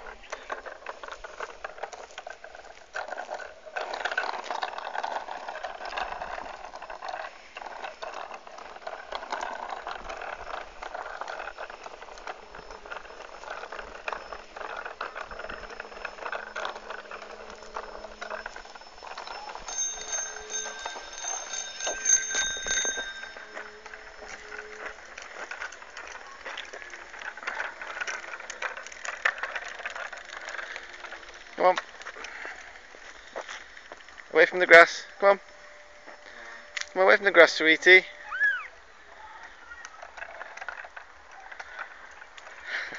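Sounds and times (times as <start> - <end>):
bicycle rolling over asphalt: 0.0 - 42.9
bicycle bell ringing: 8.6 - 28.6.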